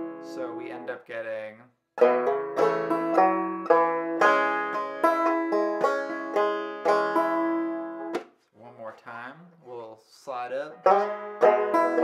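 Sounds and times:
banjo picking: 0:00.0 - 0:01.0, 0:02.0 - 0:08.4, 0:10.5 - 0:12.0.

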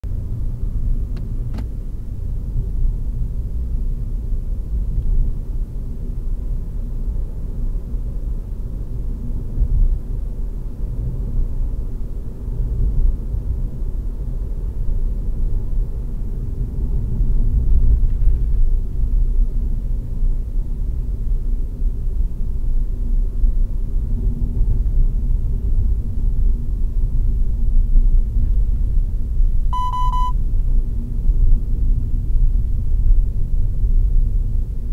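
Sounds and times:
car engine and tyres rumbling: 0:00.0 - 0:34.9.

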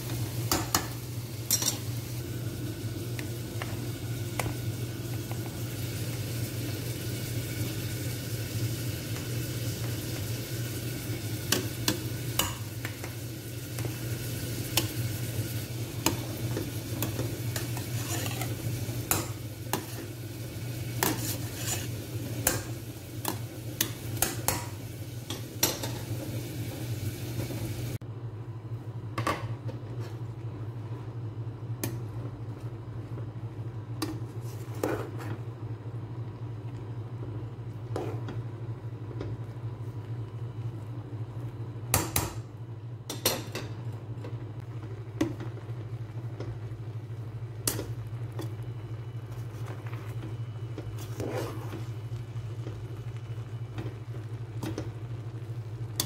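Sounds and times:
spatula scraping metal pot: 0:17.8 - 0:18.5, 0:21.0 - 0:21.9.

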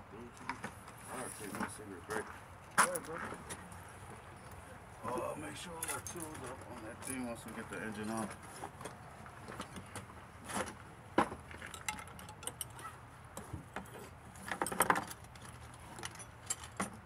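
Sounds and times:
metal tools clinking: 0:05.6 - 0:08.3, 0:11.5 - 0:17.0
metal jangling: 0:11.6 - 0:13.0, 0:13.9 - 0:17.0.

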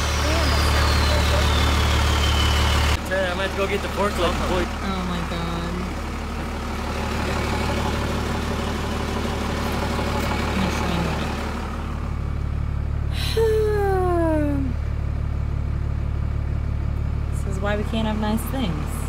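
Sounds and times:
falling squeal: 0:00.0 - 0:03.0
diesel engine idling: 0:00.0 - 0:19.0.

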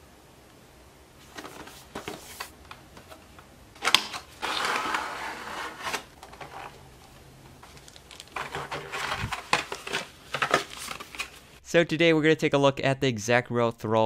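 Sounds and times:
plastic packaging clicks: 0:07.6 - 0:08.7
plastic crinkling rustle: 0:07.6 - 0:11.5.

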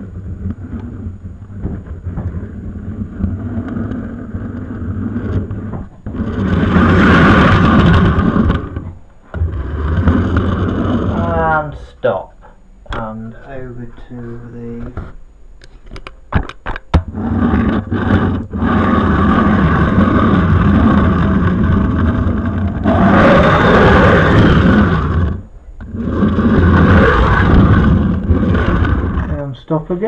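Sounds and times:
model train wheels rumbling on rails: 0:00.0 - 0:11.6, 0:17.1 - 0:29.5.

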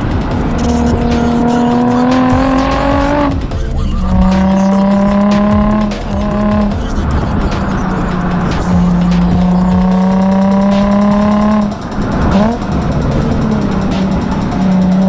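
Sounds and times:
background music with light beat: 0:00.0 - 0:15.0
car engine accelerating: 0:00.0 - 0:15.0.

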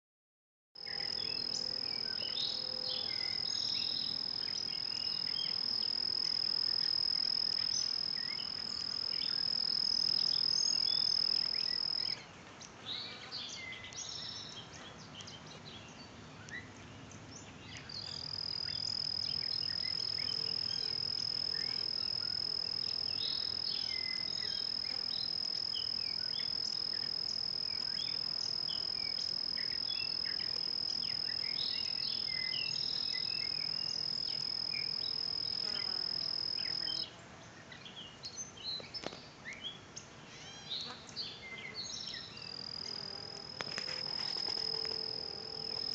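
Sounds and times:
insect high-pitched trill: 0:00.8 - 0:12.2, 0:18.0 - 0:37.0, 0:42.1 - 0:45.9
insect short chirps: 0:00.8 - 0:12.2, 0:17.9 - 0:37.0, 0:42.1 - 0:45.9.

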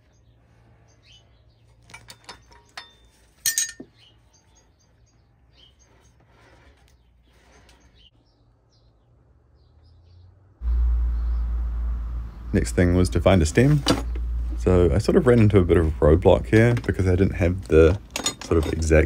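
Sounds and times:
metal parts clinking: 0:01.7 - 0:04.0, 0:16.6 - 0:19.0
faint scraping: 0:04.4 - 0:08.2.

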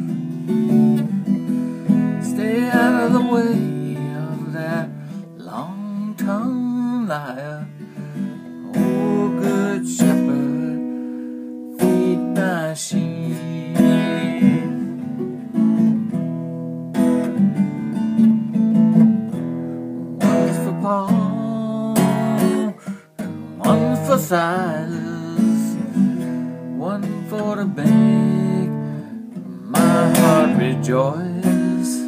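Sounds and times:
acoustic guitar strummed chords: 0:00.0 - 0:32.0.

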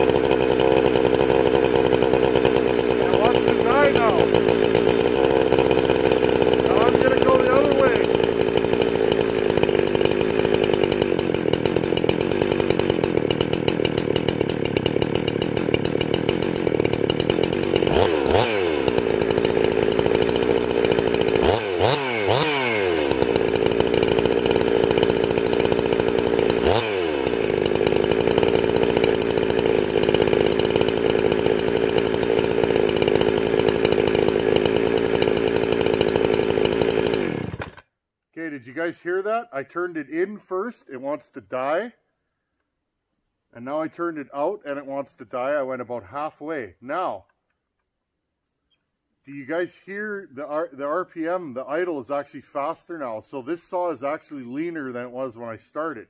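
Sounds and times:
chainsaw idling: 0:00.0 - 0:37.9.

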